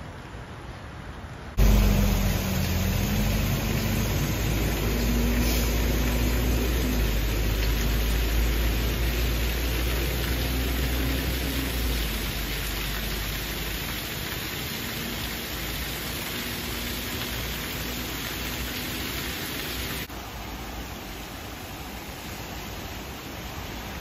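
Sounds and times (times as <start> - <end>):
faint hiss: 0.0 - 24.0
rain and water rushing into stream: 0.0 - 24.0
deep rumble: 1.6 - 9.2
faint wavering engine hum: 1.6 - 12.5.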